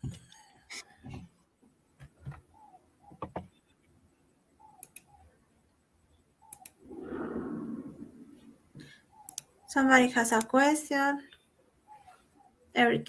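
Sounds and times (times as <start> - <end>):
mouse and keyboard clicks: 4.8 - 5.2, 6.5 - 6.8, 9.2 - 9.5.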